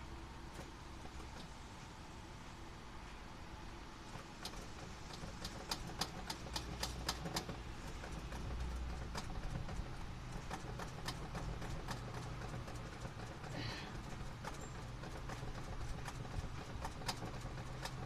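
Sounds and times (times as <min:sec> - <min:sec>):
throttle linkage clicking: 0:04.1 - 0:18.0.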